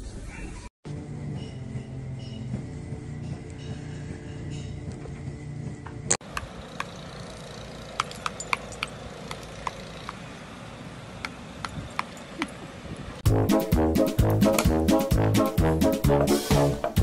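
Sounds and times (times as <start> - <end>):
light metallic clinks: 6.7 - 10.3, 11.6 - 12.6.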